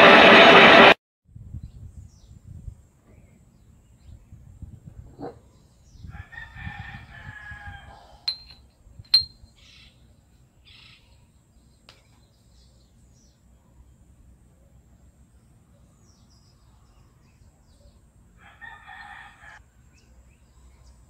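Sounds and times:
rooster crowing: 0:06.1 - 0:08.2, 0:18.4 - 0:19.6
metallic clinks: 0:08.3 - 0:09.4.

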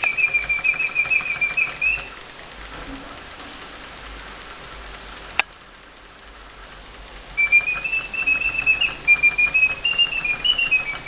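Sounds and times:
whistled birdsong with trill: 0:00.0 - 0:02.2, 0:07.4 - 0:11.0.

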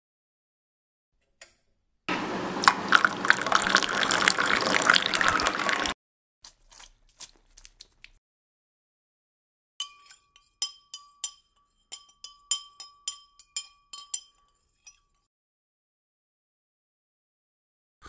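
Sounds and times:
spoon clinking in a mug: 0:09.8 - 0:15.3.

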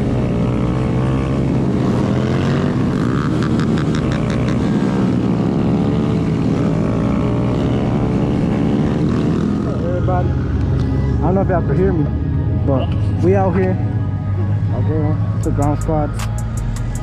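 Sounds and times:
motorcycle engines idling: 0:00.0 - 0:17.0.

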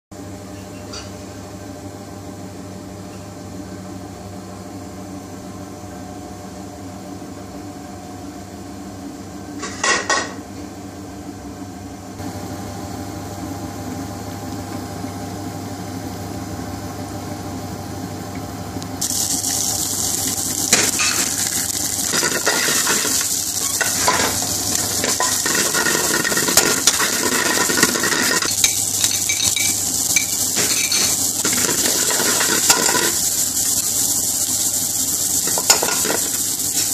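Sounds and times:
steady low hum: 0:15.4 - 0:36.8
onion and garlic sizzling in oil: 0:19.0 - 0:36.9
metal spoon scraping a pan: 0:20.7 - 0:33.2.

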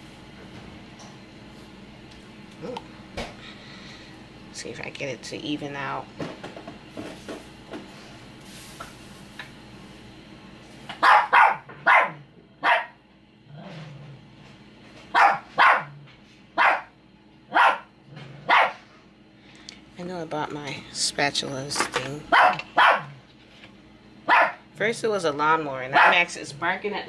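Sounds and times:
dog barking: 0:11.0 - 0:13.0, 0:15.1 - 0:16.0, 0:16.6 - 0:16.9, 0:17.5 - 0:18.8, 0:22.3 - 0:23.2, 0:24.3 - 0:24.6, 0:25.9 - 0:26.3.

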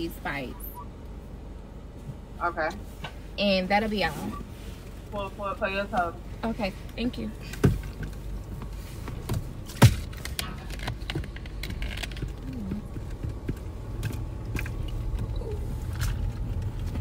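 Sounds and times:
car engine and road rumble: 0:00.0 - 0:17.0.

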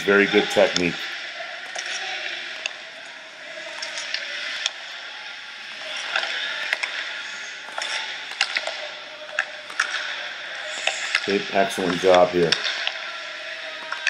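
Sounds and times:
hockey stick hitting puck: 0:07.7 - 0:11.2.

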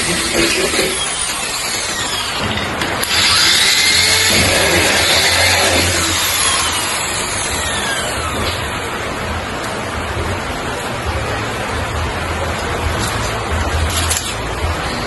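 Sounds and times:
power tool motor running: 0:00.0 - 0:08.8.

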